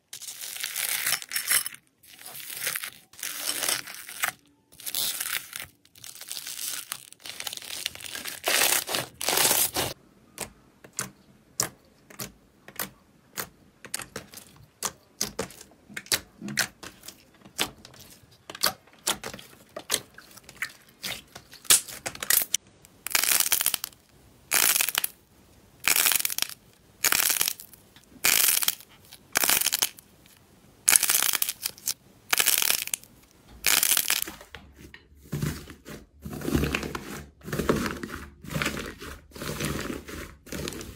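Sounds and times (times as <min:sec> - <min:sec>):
slime squishing: 0:02.0 - 0:22.2.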